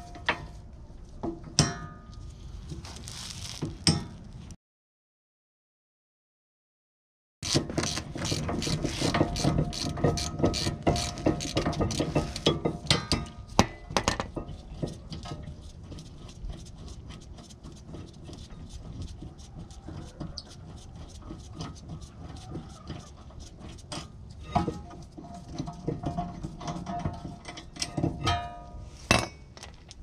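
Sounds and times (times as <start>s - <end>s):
ratchet wrench clicking: 7.4s - 12.1s.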